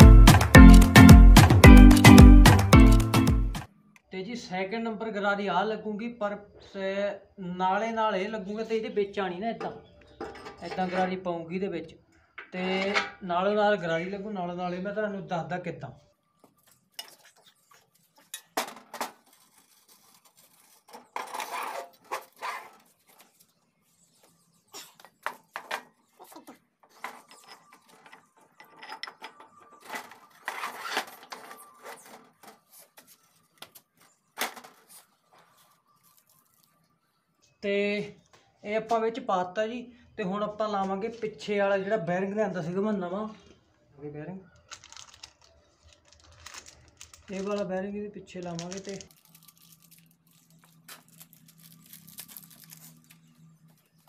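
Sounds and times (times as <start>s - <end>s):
paper wrapping crinkling: 16.5s - 24.4s, 29.8s - 36.9s, 44.6s - 47.8s, 48.4s - 54.0s.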